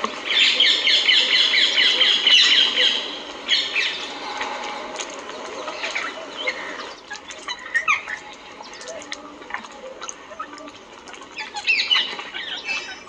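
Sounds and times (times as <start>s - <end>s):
small birds chirping: 0.2s - 13.0s.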